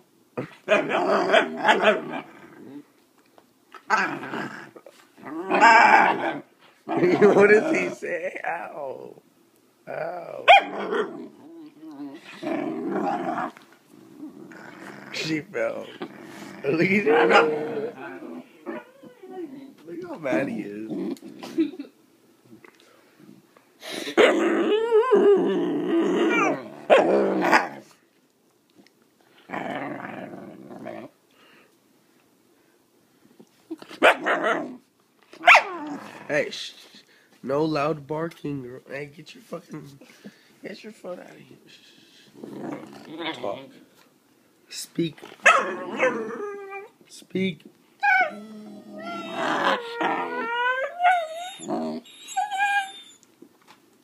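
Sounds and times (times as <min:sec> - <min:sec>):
puppy growling: 0:00.4 - 0:02.9, 0:03.8 - 0:09.1, 0:09.8 - 0:21.7, 0:24.1 - 0:28.0, 0:29.4 - 0:31.2, 0:33.7 - 0:36.5, 0:42.3 - 0:43.8, 0:45.2 - 0:47.0, 0:48.0 - 0:53.2
puppy barking: 0:00.7 - 0:02.1, 0:10.5 - 0:11.1, 0:17.1 - 0:17.7, 0:34.0 - 0:34.6, 0:35.4 - 0:35.8, 0:45.4 - 0:46.3
young dog howling and whining: 0:05.2 - 0:06.5, 0:16.7 - 0:19.8, 0:24.2 - 0:27.8, 0:35.4 - 0:36.3, 0:45.5 - 0:47.0, 0:48.0 - 0:53.2.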